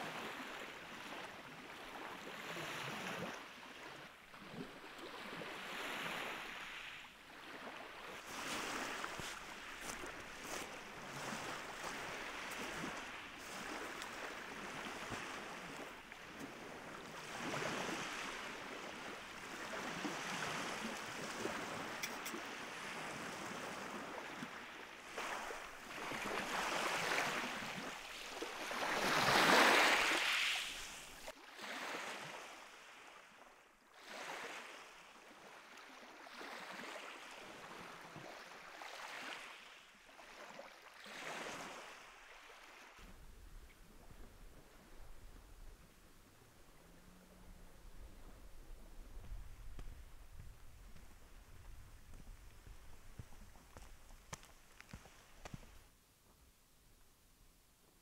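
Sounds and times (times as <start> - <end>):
lake waves breaking: 0.0 - 33.1.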